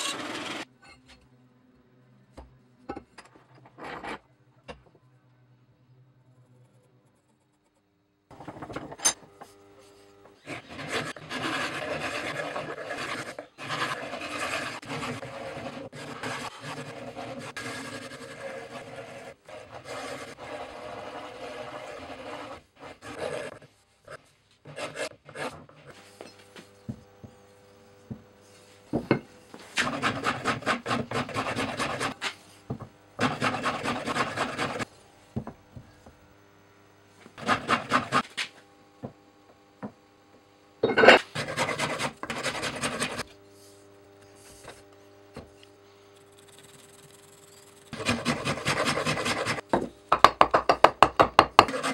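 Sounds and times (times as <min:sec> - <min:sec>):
rasp scraping wood: 0:10.4 - 0:23.7, 0:29.8 - 0:32.4, 0:33.2 - 0:34.9, 0:37.4 - 0:38.4, 0:41.2 - 0:43.3, 0:46.3 - 0:49.6, 0:51.6 - 0:51.9.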